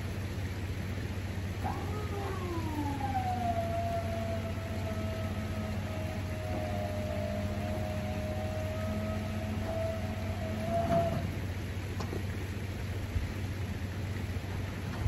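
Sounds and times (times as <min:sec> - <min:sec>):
low steady hum: 0:00.0 - 0:15.0
hydraulic pump motor whining: 0:01.4 - 0:12.4.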